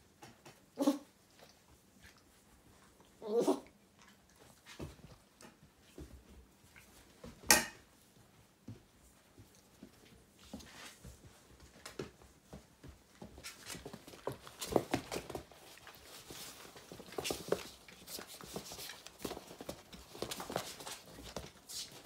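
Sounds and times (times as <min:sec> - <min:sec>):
puppies scuffling: 0:00.0 - 0:22.0
claws scrabbling on floor: 0:09.4 - 0:22.0.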